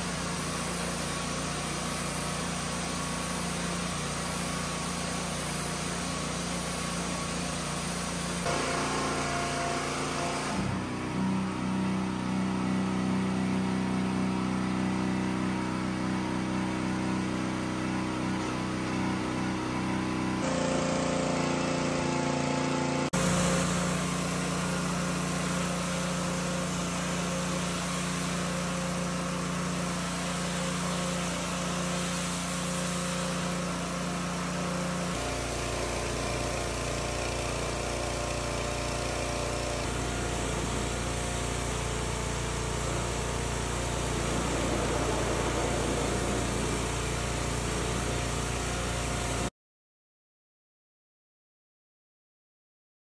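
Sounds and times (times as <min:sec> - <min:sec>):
high-pressure spray hissing: 0:00.0 - 0:10.7, 0:20.4 - 0:24.0, 0:39.8 - 0:49.4
pressure washer engine hum: 0:00.0 - 0:49.5.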